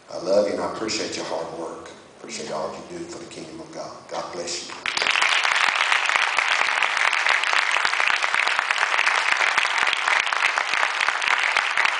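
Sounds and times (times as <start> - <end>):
congregation clapping: 4.4 - 11.9.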